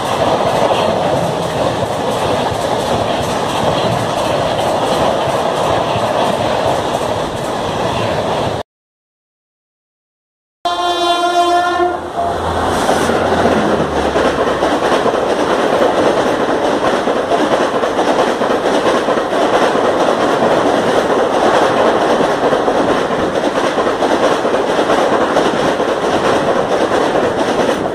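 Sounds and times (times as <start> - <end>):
train rushing past on rails: 0.0 - 8.6, 10.7 - 27.9
locomotive horn blast: 10.6 - 13.6.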